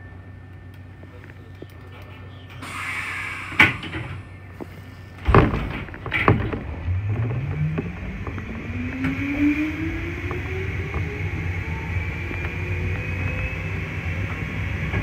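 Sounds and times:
train brake hiss: 2.6 - 4.2
heavy clunks: 3.5 - 7.9
electric train motor whine: 6.6 - 15.0.

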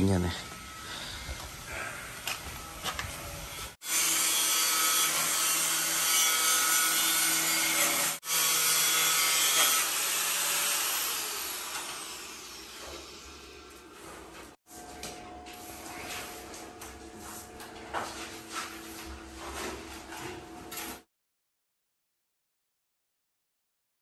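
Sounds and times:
power tool cutting: 3.8 - 13.6.

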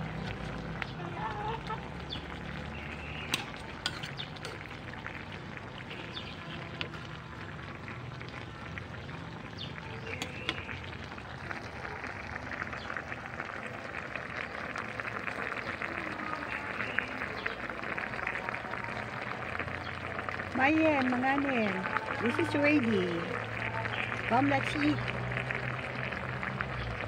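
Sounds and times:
broth bubbling in a pan: 0.0 - 27.0
ladle clinking against pan: 3.3 - 4.6.

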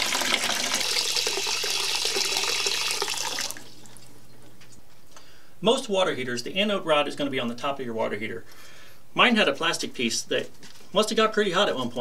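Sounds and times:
water pouring into plastic bucket: 0.0 - 4.1.

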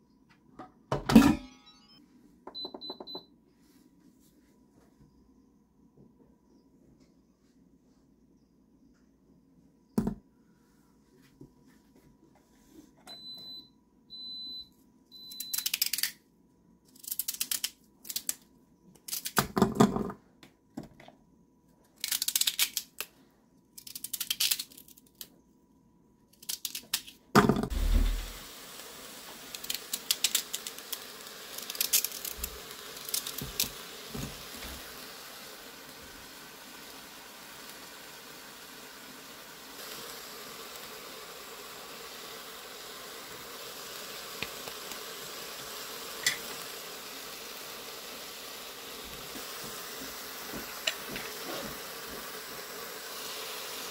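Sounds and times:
short electronic beeps: 1.4 - 2.0
vegetables snapped and peeled: 15.5 - 16.2, 16.9 - 18.4, 19.0 - 19.6, 22.0 - 23.1, 23.8 - 25.3, 26.3 - 27.2, 29.5 - 33.8
loud thump: 27.7 - 28.4
steady hiss: 27.7 - 53.9.

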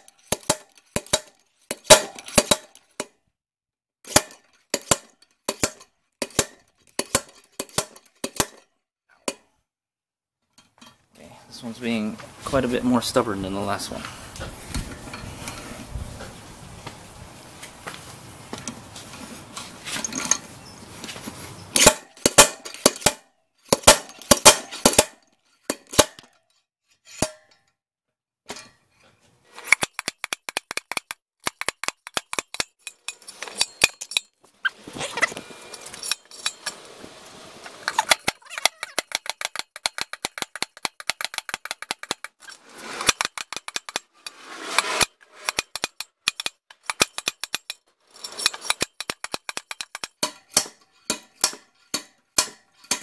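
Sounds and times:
slide hammer metal clacks: 0.0 - 3.2, 4.1 - 8.7, 21.7 - 26.4, 37.8 - 53.0.

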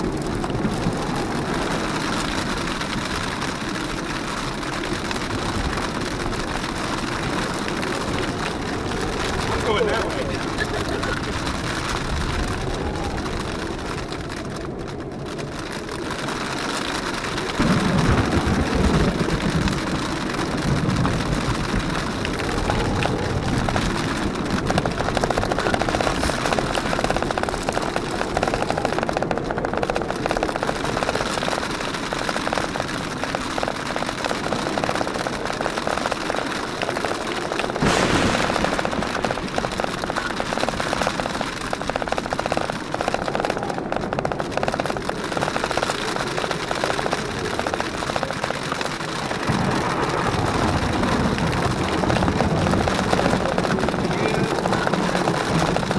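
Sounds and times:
low rumble: 0.0 - 55.9
rain on car body: 0.0 - 55.9
rapid ticking: 0.0 - 55.9
tyres on gravel: 0.0 - 55.9.

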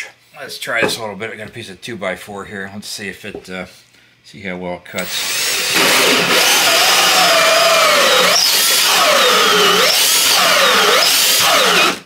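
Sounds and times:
drill with hole saw cutting wood: 5.0 - 12.0.

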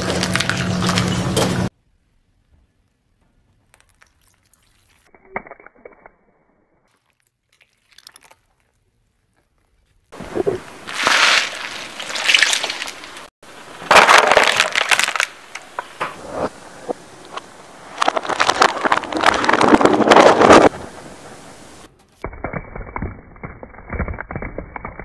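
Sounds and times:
car tyre crushing objects: 13.8 - 16.1, 17.3 - 20.7.

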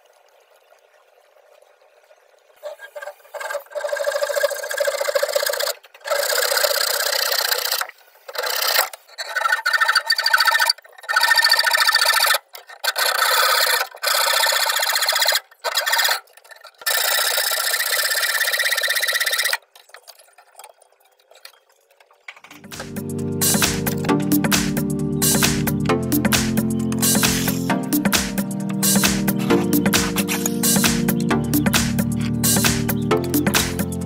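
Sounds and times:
tool rasping on metal pipe: 2.7 - 16.2.

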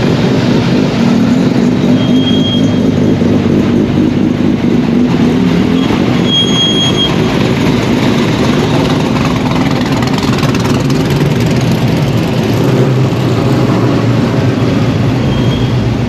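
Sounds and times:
car engines rumbling at low revs: 0.0 - 16.0.

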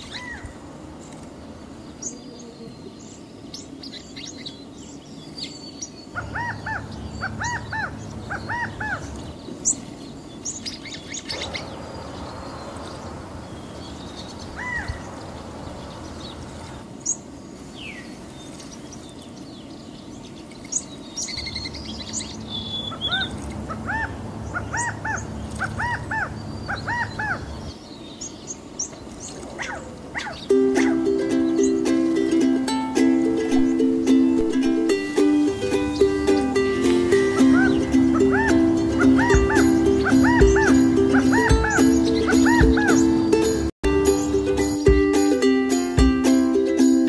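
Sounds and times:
quail chirping calls: 6.1 - 9.8, 14.4 - 15.1, 20.7 - 27.7, 29.3 - 31.8, 37.3 - 43.5.

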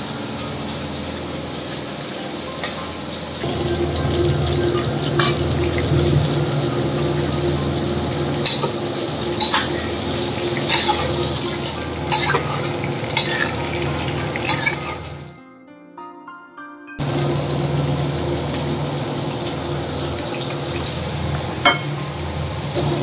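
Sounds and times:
meat sizzling in a wok: 0.0 - 15.3, 17.0 - 23.0
metal spatula scraping a pan: 8.4 - 15.2.

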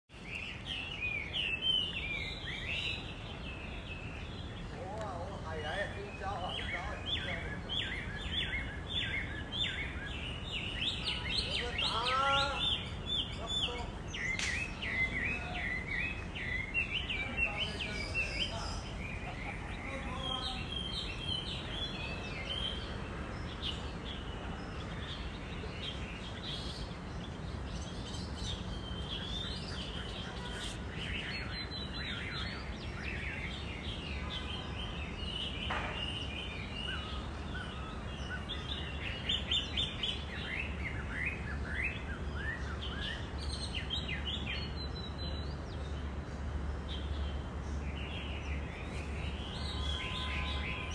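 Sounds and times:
birds chirping and singing: 0.1 - 50.9.

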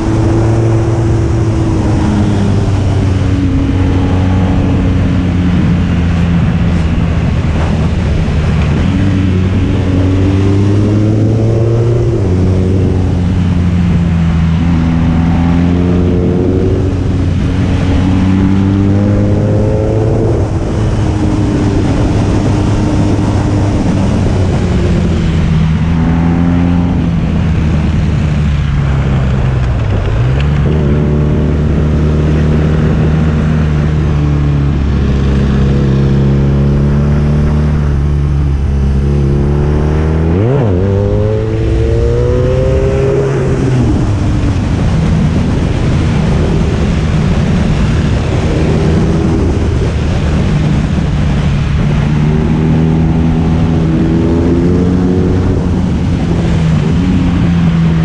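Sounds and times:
motorcycle engine shifting gears: 0.0 - 58.0
wind and road noise: 0.0 - 58.0.

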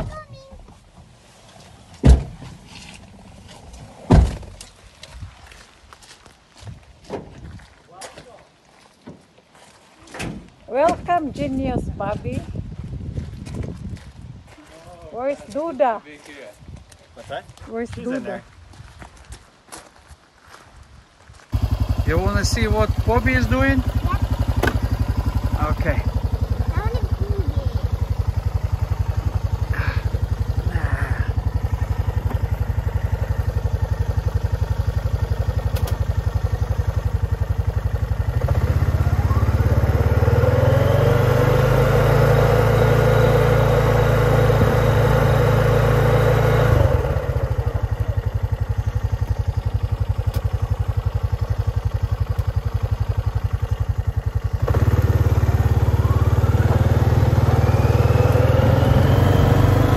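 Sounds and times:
atv engine running: 21.5 - 59.9.

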